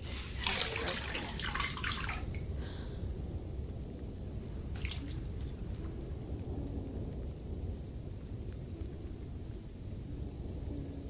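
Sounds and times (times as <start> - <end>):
small water splash: 0.0 - 2.6, 4.7 - 5.3
faint water drips: 0.0 - 11.0
low steady rumble: 0.0 - 11.0.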